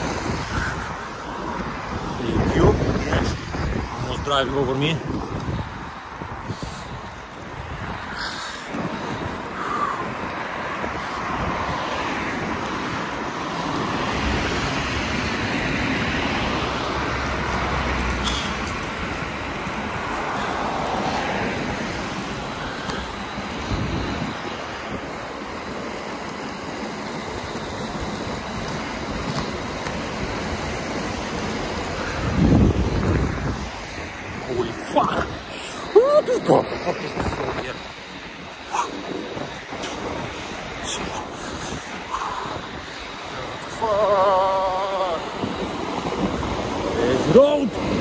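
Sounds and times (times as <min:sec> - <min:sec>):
cars passing on wet road: 0:00.0 - 0:48.0
skate wheels rolling on asphalt: 0:00.0 - 0:48.0
wind rushing: 0:00.0 - 0:48.0.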